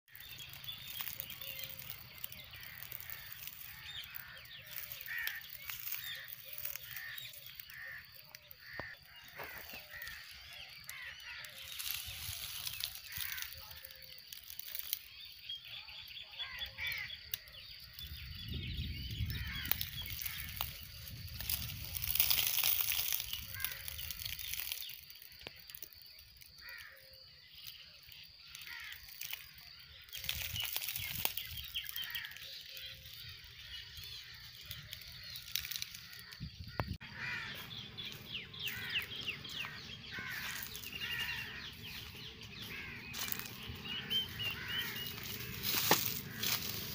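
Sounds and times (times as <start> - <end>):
parakeets chirping and squawking: 0.1 - 13.6, 19.1 - 24.5, 30.2 - 46.9
rustling noise: 35.1 - 46.9.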